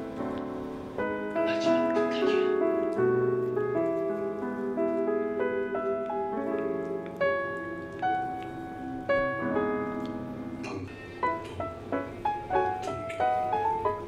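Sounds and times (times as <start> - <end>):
slow piano music: 0.0 - 14.0.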